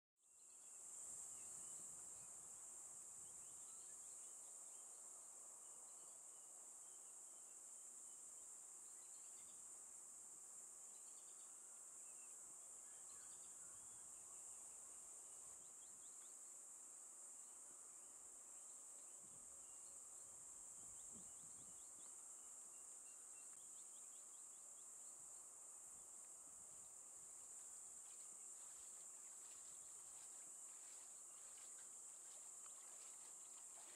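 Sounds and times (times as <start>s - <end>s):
insect chorus drone: 0.2s - 33.9s
faint bird chirps: 8.9s - 9.6s, 10.9s - 16.5s, 20.8s - 25.0s.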